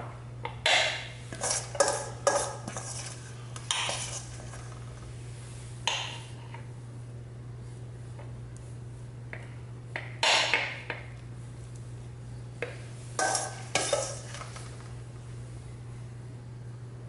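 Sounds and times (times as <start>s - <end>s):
steady low hum: 0.0s - 17.0s
metal spoon scraping steel bowl: 1.3s - 4.6s, 13.2s - 14.4s.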